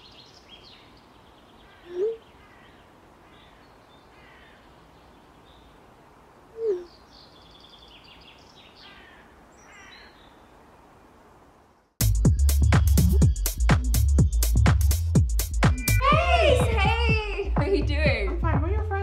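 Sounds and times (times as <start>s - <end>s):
birds chirping faintly: 0.0s - 14.6s.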